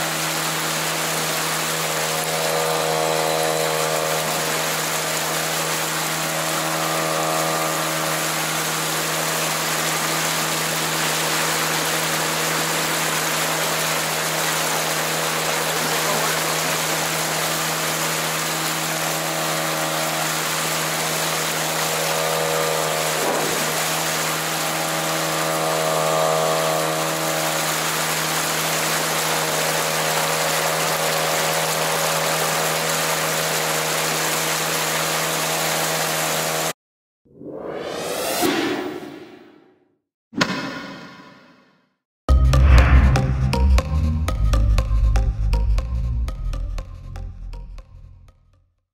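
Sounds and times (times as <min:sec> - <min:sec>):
outboard motor running: 0:00.0 - 0:36.7.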